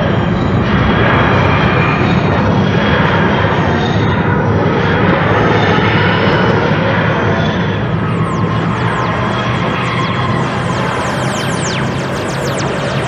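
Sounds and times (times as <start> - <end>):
loud dense drone: 0.0 - 13.0.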